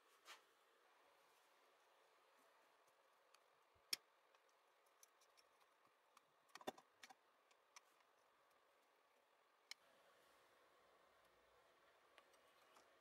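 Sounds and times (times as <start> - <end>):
screwdriver clicks and taps: 3.3 - 8.1.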